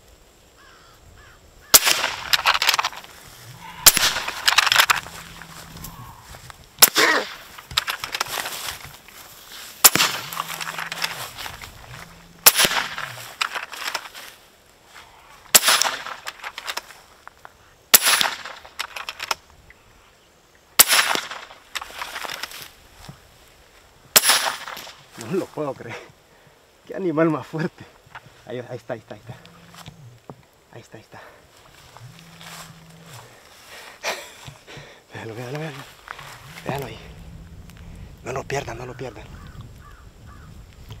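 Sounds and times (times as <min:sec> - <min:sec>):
air rifle shots: 0:01.7 - 0:03.0, 0:03.8 - 0:05.1, 0:06.8 - 0:08.1, 0:09.8 - 0:11.2, 0:12.4 - 0:13.5, 0:15.5 - 0:16.4, 0:17.9 - 0:18.8, 0:20.8 - 0:21.5, 0:24.2 - 0:24.9
rustling: 0:01.8 - 0:17.6, 0:21.0 - 0:25.6, 0:27.6 - 0:41.0.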